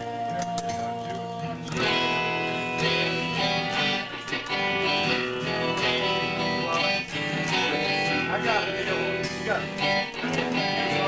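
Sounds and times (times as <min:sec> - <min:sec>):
electric guitar strumming chords: 0:00.0 - 0:11.0.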